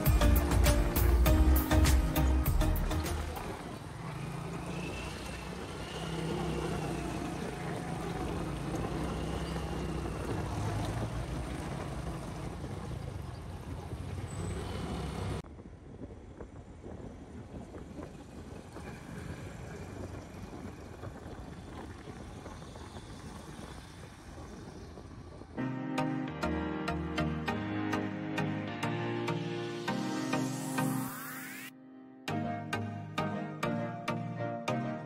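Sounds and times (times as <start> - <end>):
car engines passing: 0.0 - 15.4, 17.2 - 25.6
distant traffic: 0.0 - 31.2
tyre noise on asphalt: 0.1 - 25.6.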